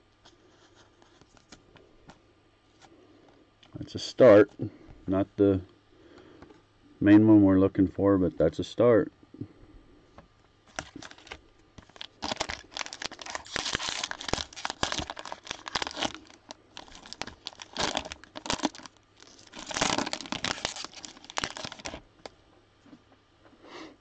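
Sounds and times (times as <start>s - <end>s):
cellophane wrapper crinkling: 10.6s - 22.4s.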